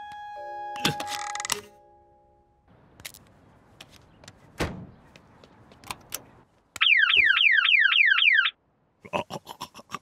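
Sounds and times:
cartoon car alarm: 6.8s - 8.6s.

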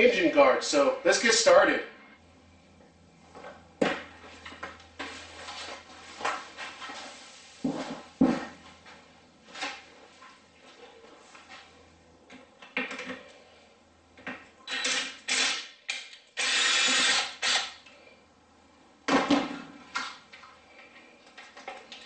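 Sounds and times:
power drill bursts: 14.7s - 15.7s, 16.4s - 17.8s.

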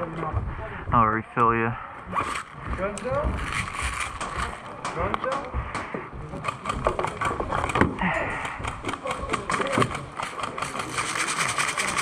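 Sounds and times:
rapid mechanical clicks: 8.4s - 12.0s.

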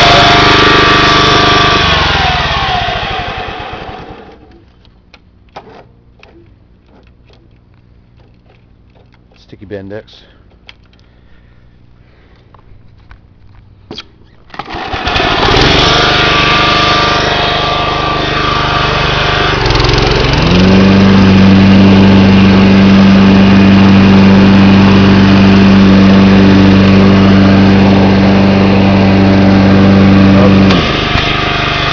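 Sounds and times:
small lawn mower engine running: 0.0s - 4.8s, 14.5s - 31.9s.

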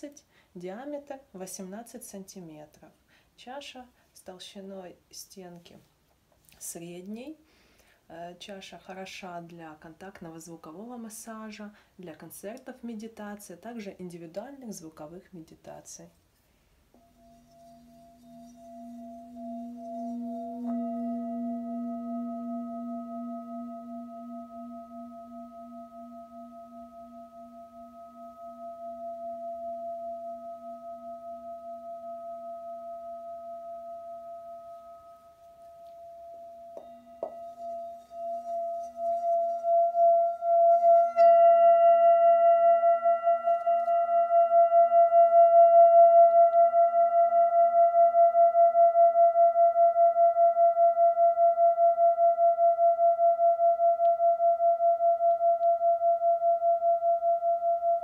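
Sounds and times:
singing bowl ringing: 16.9s - 58.0s.

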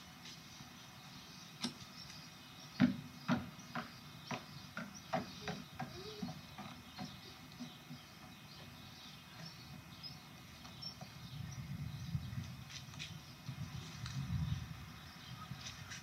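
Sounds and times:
footsteps on wooden boards: 2.7s - 11.2s.

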